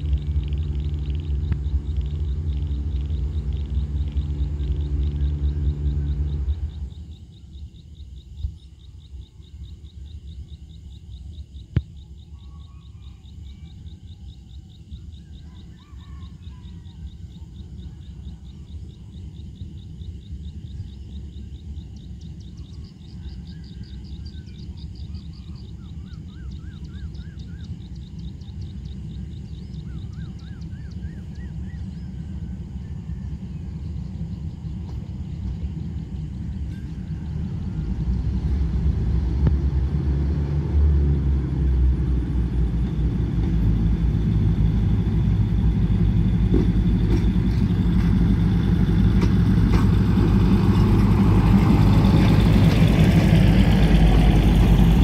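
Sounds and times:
high rapid chirping and trills: 0:00.0 - 0:07.1
diesel locomotive rumble: 0:00.0 - 0:12.4, 0:13.2 - 0:55.0.

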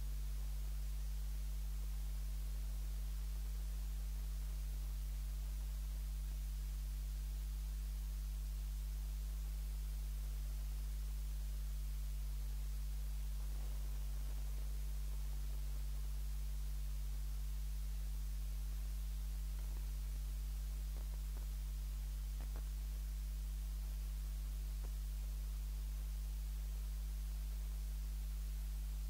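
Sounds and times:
electrical mains hum: 0:00.0 - 0:29.0
faint hiss: 0:00.0 - 0:29.0
faint clicks: 0:19.4 - 0:22.8.

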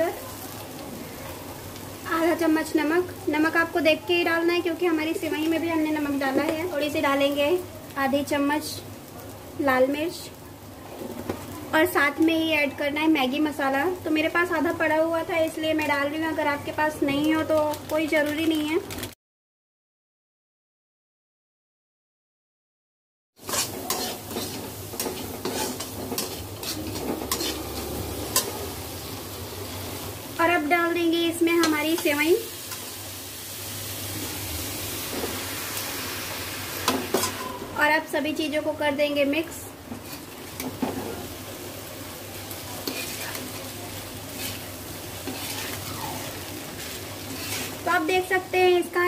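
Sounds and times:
frying sizzle: 0:00.0 - 0:19.2, 0:23.4 - 0:49.0
metal spoon scraping pan: 0:23.4 - 0:28.6, 0:40.0 - 0:41.3, 0:42.8 - 0:43.6, 0:44.3 - 0:45.9, 0:46.8 - 0:47.9.

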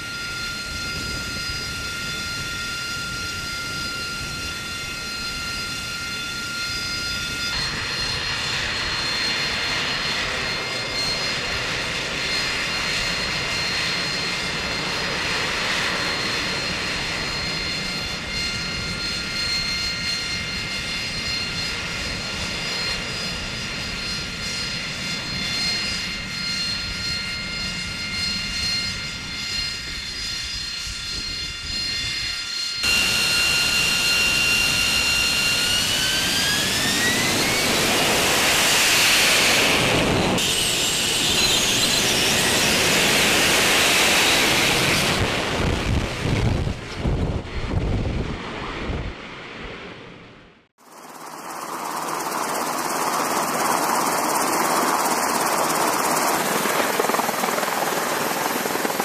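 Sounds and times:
jet engine whine and rumble: 0:00.0 - 0:59.0.

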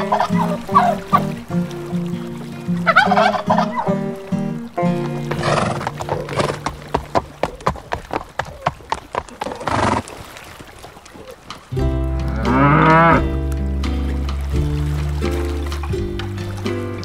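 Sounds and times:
background music: 0:00.0 - 0:07.4, 0:11.5 - 0:17.0
hooves clip-clopping: 0:00.0 - 0:17.0
horse neighing: 0:05.4 - 0:07.0.

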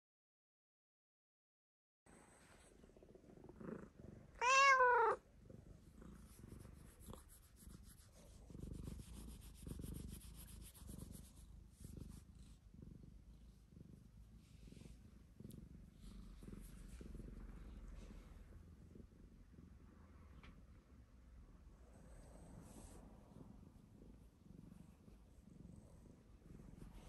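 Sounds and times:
cat purring: 0:02.1 - 0:27.0
cat meowing: 0:04.4 - 0:05.2.

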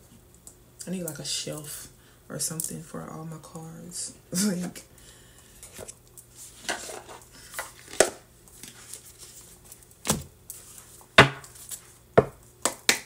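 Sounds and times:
cards snapping and clacking: 0:12.6 - 0:13.0.

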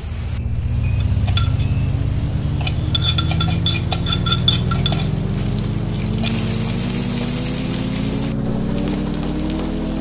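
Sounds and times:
food frying in oil: 0:00.0 - 0:10.0
low steady drone: 0:00.0 - 0:10.0
metal utensil tapping wok: 0:00.5 - 0:06.6.

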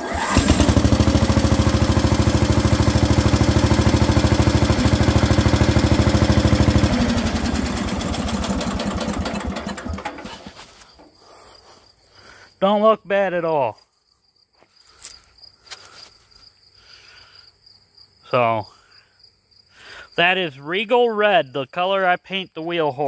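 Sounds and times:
garden tractor engine running: 0:00.0 - 0:11.4.

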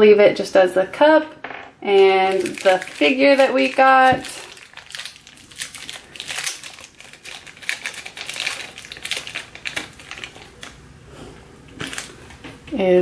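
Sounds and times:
plastic wrapper crinkling: 0:01.9 - 0:10.8, 0:11.7 - 0:12.5.

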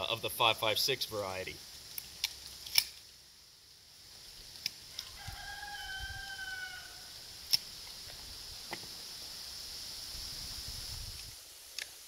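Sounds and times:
rooster crowing: 0:05.0 - 0:07.3.

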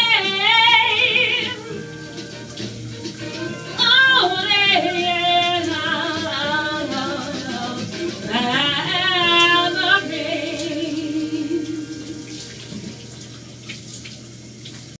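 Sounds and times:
shower running: 0:00.0 - 0:15.0
person singing wordless notes: 0:03.2 - 0:12.4.

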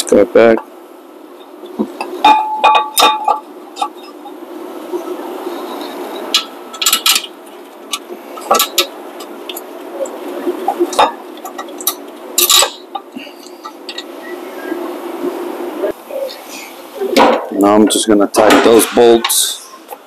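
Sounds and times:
steady low hum: 0:00.0 - 0:20.0
metal clinks and knocks: 0:01.4 - 0:04.3, 0:10.8 - 0:14.1.

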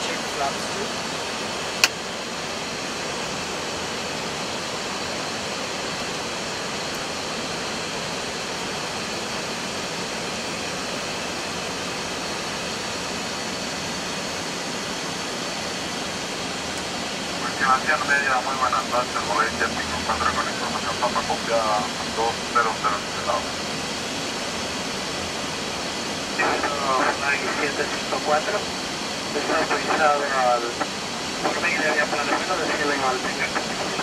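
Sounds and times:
rush of air in cockpit: 0:08.6 - 0:34.0.

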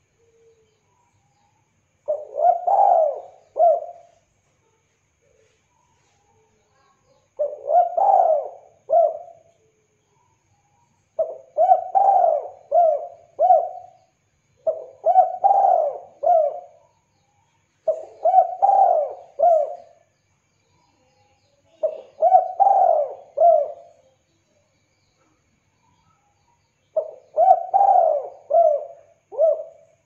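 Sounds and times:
dove cooing: 0:02.1 - 0:04.2, 0:07.3 - 0:09.5, 0:11.2 - 0:14.0, 0:14.6 - 0:16.9, 0:17.8 - 0:20.0, 0:21.8 - 0:24.0, 0:27.0 - 0:30.0.

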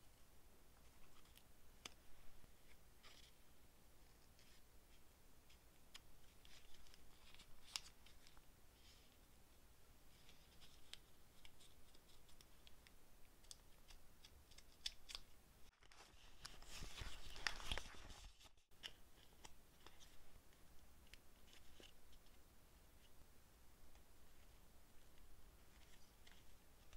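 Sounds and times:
scissors snipping paper: 0:13.4 - 0:15.3
paper rustling: 0:14.5 - 0:20.3.

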